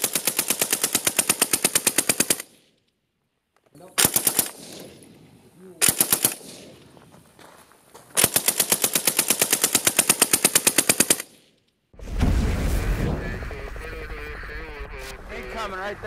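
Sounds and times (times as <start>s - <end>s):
suppressed automatic rifle fire: 4.0s - 5.1s, 5.8s - 6.9s, 8.2s - 11.4s
deep boom: 12.0s - 16.0s.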